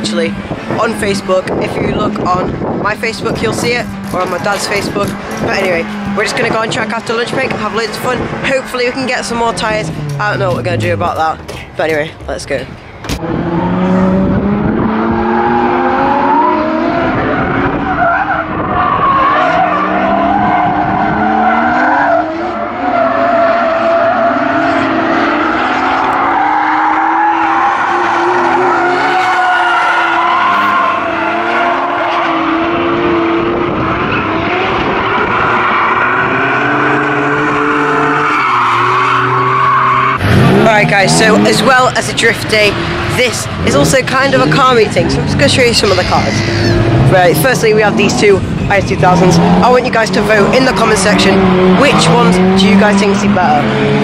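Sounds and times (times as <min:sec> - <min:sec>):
car engine revving: 0:00.0 - 0:54.0
tyres squealing: 0:35.2 - 0:42.1, 0:42.8 - 0:48.2.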